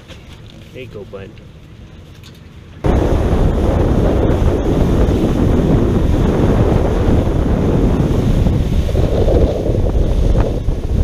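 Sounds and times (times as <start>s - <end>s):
water rushing past a boat: 0.0s - 11.0s
wind buffeting the microphone: 2.8s - 11.0s.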